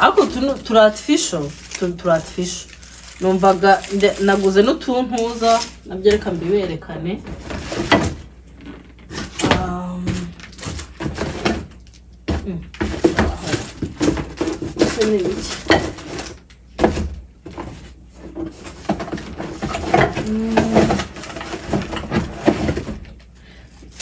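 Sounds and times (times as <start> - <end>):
packaging rustling: 0.0 - 6.3, 7.3 - 12.2, 12.8 - 16.6
household items clinking: 0.0 - 8.2, 9.2 - 23.0.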